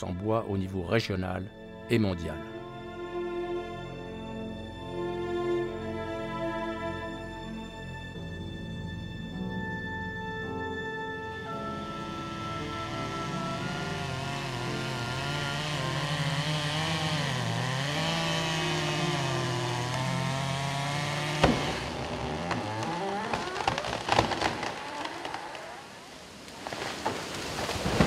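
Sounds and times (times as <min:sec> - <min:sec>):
chainsaw running: 0:11.3 - 0:26.1
wood cracking and snapping: 0:13.8 - 0:28.0.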